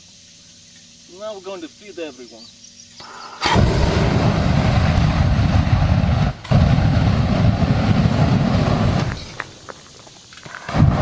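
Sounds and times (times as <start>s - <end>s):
flamethrower blast: 3.4s - 9.7s, 10.3s - 11.0s.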